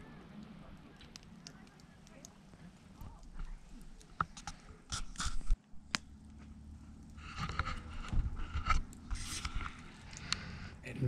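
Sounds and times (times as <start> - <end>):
rustling and scraping: 2.6 - 5.6, 6.4 - 10.4.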